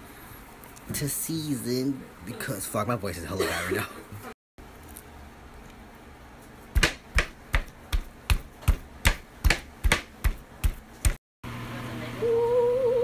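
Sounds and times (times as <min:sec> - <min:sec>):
hand pounding meat: 0:06.7 - 0:11.2.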